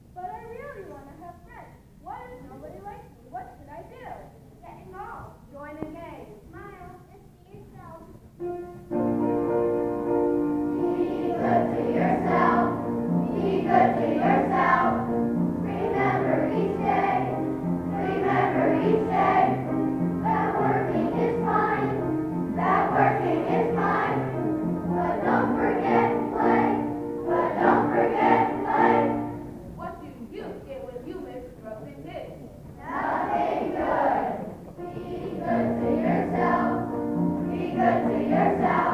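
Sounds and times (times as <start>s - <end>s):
instrumental accompaniment: 8.4s - 29.8s, 32.9s - 38.9s
children's choir singing: 10.7s - 29.6s, 32.8s - 38.9s.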